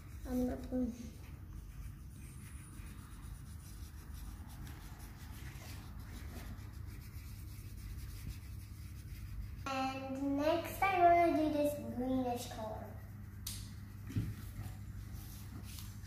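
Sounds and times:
markers scratching on paper: 0:00.0 - 0:09.7
low steady hum: 0:00.0 - 0:16.0.

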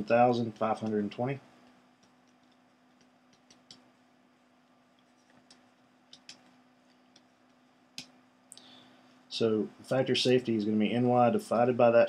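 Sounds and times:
faint steady hum: 0:00.0 - 0:12.0
stylus tapping on tablet: 0:01.6 - 0:03.9, 0:05.2 - 0:08.2.

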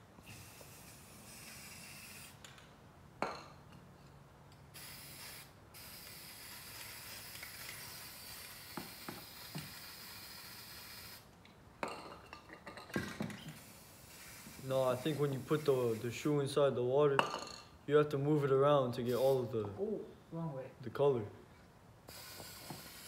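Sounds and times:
spray paint can hissing: 0:00.2 - 0:02.4, 0:04.7 - 0:11.3, 0:13.5 - 0:16.0, 0:19.1 - 0:19.4, 0:22.1 - 0:23.0.

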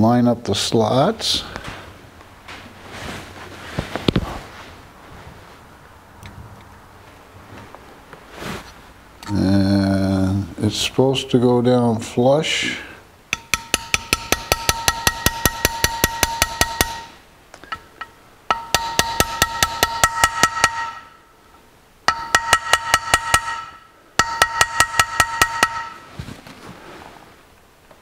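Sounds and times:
small hammer tapping a metal punch: 0:13.3 - 0:21.2, 0:22.1 - 0:26.0.

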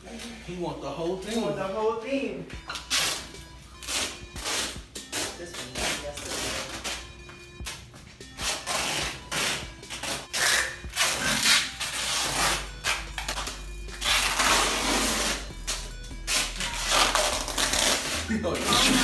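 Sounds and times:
duct tape ripping off roll: 0:02.7 - 0:07.0, 0:08.4 - 0:19.0.

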